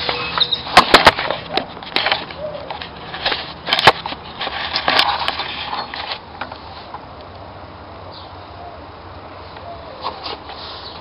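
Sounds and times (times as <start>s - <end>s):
wrench rubbing and rattling: 0.0s - 6.3s.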